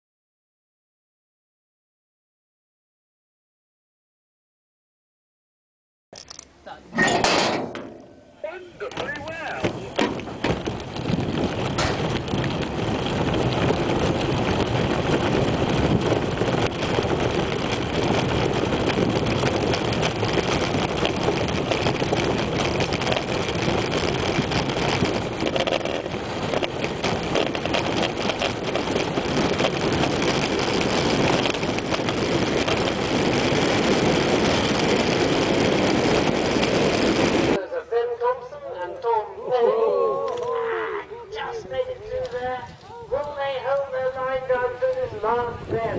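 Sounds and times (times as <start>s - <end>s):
wheels rumbling and rattling: 6.2s - 45.9s
wind on the microphone: 8.9s - 37.6s, 39.5s - 45.9s.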